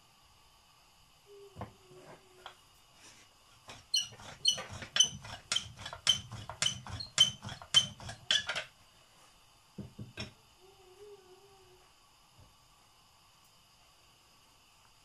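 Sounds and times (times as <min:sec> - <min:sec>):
rolling pin rumbling on dough: 0:03.6 - 0:08.7.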